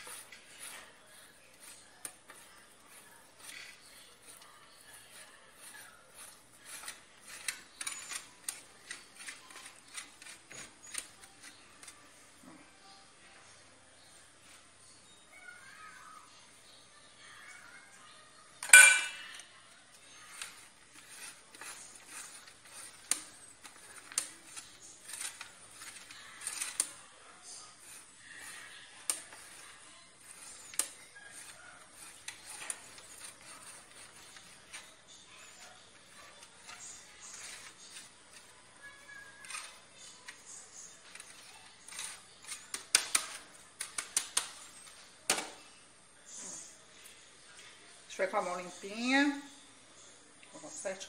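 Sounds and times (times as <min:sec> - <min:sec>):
cheese grating on metal grater: 0:00.0 - 0:12.2, 0:18.7 - 0:45.1.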